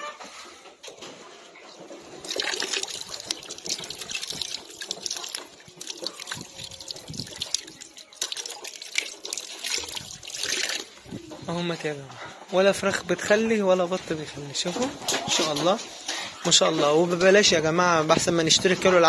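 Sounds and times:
tap water running over hands: 2.2s - 11.4s.

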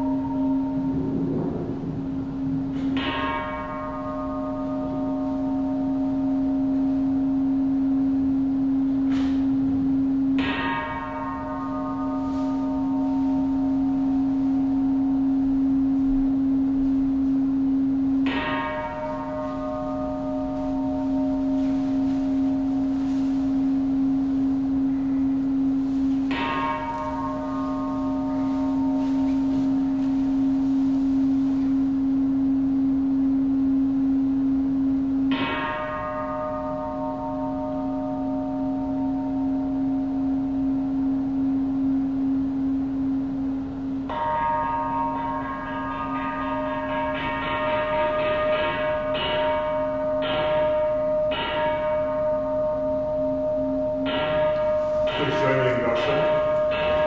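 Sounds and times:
bell ringing: 0.0s - 9.3s, 9.9s - 16.6s, 17.6s - 32.2s, 44.1s - 57.0s
steady low drone: 0.0s - 57.0s.

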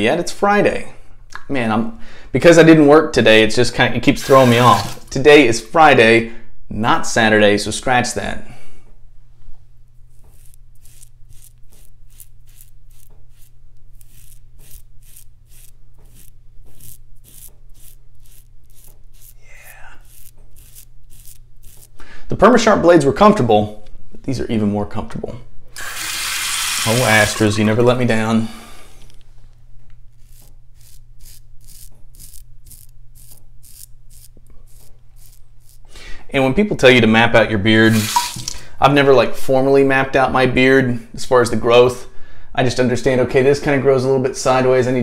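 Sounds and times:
razor scraping stubble: 4.0s - 5.1s, 10.0s - 22.0s, 29.9s - 36.0s.

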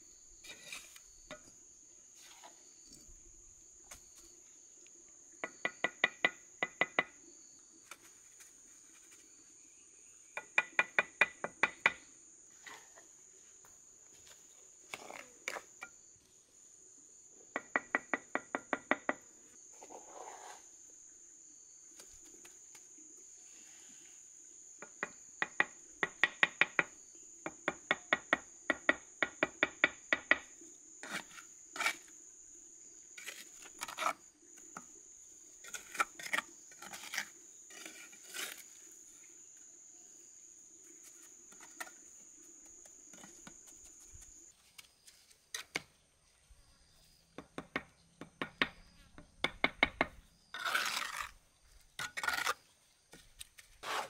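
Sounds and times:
insects droning: 0.0s - 54.0s
trowel scraping mortar: 0.4s - 1.1s, 19.8s - 20.7s, 31.0s - 32.1s, 33.2s - 34.3s, 35.6s - 38.9s, 50.5s - 51.4s, 52.0s - 52.7s, 53.6s - 54.0s
trowel tapping bricks: 47.4s - 51.3s.

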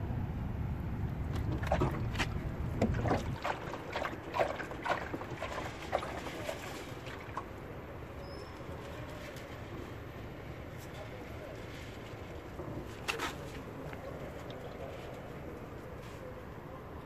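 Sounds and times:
water dripping and splashing on ground: 1.3s - 7.6s.

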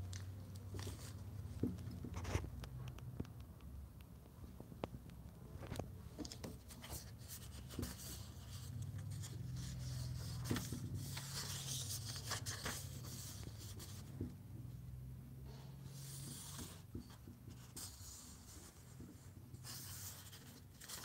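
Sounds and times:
book pages rustling: 0.0s - 2.6s, 5.6s - 14.3s, 16.0s - 21.0s.

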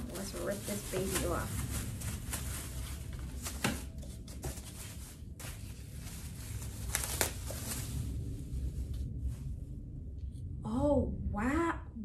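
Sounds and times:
plastic wrapping ripping: 0.0s - 8.0s
plastic wrapping crinkling: 0.0s - 8.9s.

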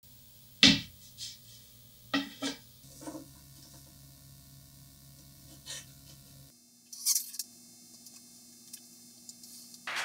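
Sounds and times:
wooden boards knocking on workbench: 0.6s - 0.9s, 2.2s - 2.6s.

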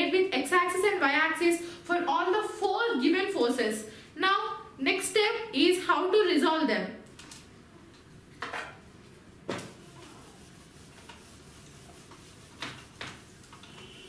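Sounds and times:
whiteboard eraser rubbing: 9.5s - 14.0s.

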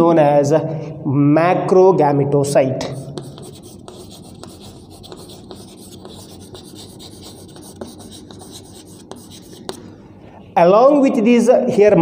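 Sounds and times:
chalk scratching on chalkboard: 2.8s - 9.9s
chalk tapping on board: 2.9s - 9.9s.

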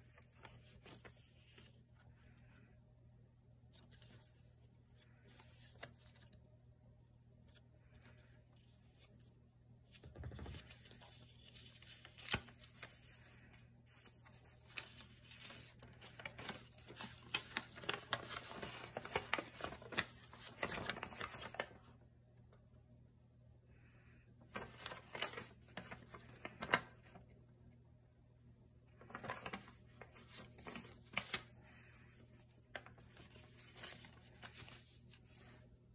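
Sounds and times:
paper pages flipping: 0.0s - 2.5s, 3.6s - 6.4s, 7.4s - 22.0s, 24.4s - 27.3s, 28.9s - 35.7s
dense paper crinkling: 0.0s - 2.6s, 3.7s - 6.4s, 7.4s - 22.0s, 24.4s - 27.3s, 28.9s - 35.8s
paper snap: 12.0s - 12.9s.

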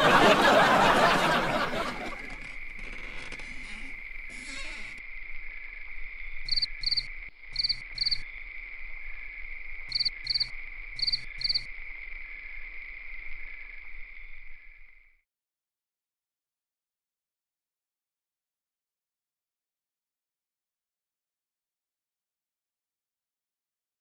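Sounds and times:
crickets trilling: 0.4s - 15.2s
cricket chirps in pairs: 2.3s - 15.2s.

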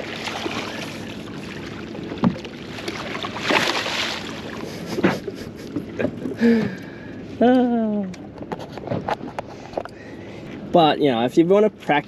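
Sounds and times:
fish thrashing in water: 0.0s - 6.7s.

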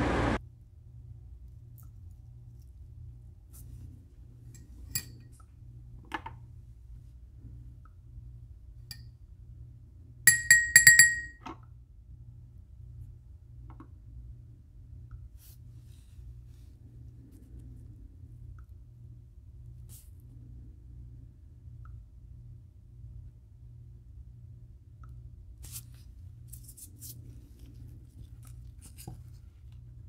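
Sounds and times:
tweezers tapping ceramic dish: 10.3s - 11.4s.

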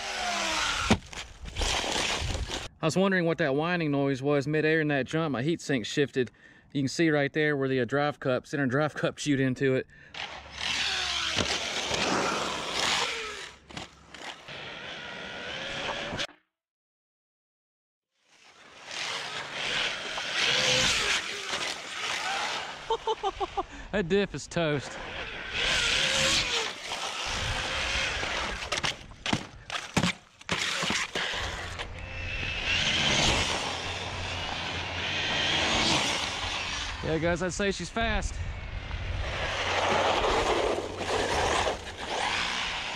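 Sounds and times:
electric motor whine: 0.0s - 1.0s, 10.4s - 13.6s, 14.4s - 16.3s, 18.6s - 23.0s, 25.0s - 28.8s, 30.8s - 37.0s, 38.6s - 42.9s
tyre noise on asphalt: 10.6s - 14.5s, 38.7s - 42.9s.

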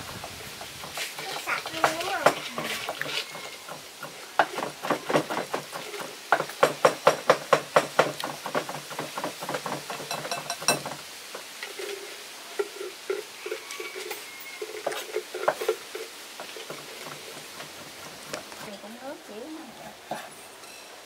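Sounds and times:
utensil clinking in bowl: 10.0s - 11.0s.

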